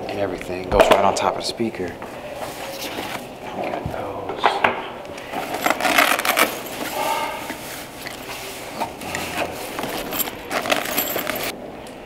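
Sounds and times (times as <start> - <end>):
fabric rustling: 5.3 - 11.6
cables and clasps clinking: 8.8 - 11.6.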